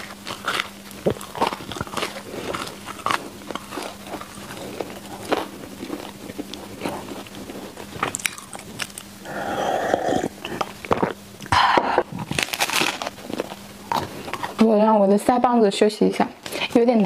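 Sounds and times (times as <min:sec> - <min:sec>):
person chewing sticky bread: 0:00.0 - 0:14.7
breathy sound: 0:09.2 - 0:10.7.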